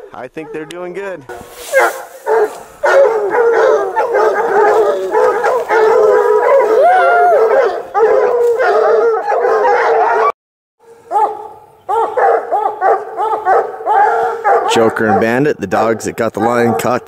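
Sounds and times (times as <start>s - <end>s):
hounds baying and howling: 1.6s - 17.0s.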